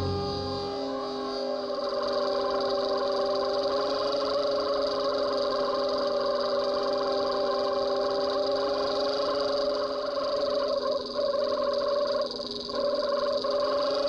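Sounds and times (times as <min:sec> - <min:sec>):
underwater boat engine drone: 0:00.0 - 0:01.7.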